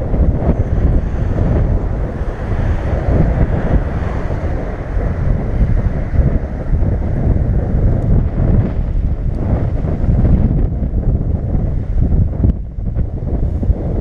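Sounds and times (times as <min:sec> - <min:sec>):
waves breaking on rocky shore: 0:00.0 - 0:09.6
wind buffeting microphone: 0:00.0 - 0:14.0.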